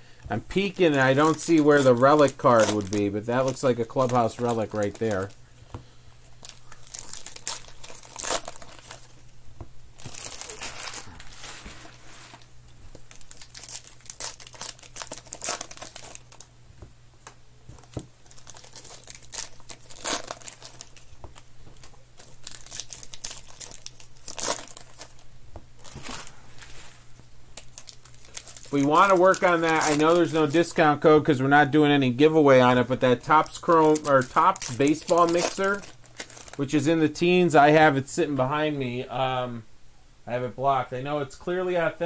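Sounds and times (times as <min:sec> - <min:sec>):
wrappers crinkling: 0:00.5 - 0:05.4, 0:06.2 - 0:09.3, 0:10.0 - 0:16.5, 0:17.2 - 0:25.2, 0:25.8 - 0:31.0, 0:32.6 - 0:36.8
wrappers ripping: 0:00.6 - 0:05.4, 0:06.4 - 0:09.2, 0:10.0 - 0:16.5, 0:17.8 - 0:25.2, 0:25.8 - 0:26.9, 0:27.6 - 0:30.8, 0:33.2 - 0:36.6.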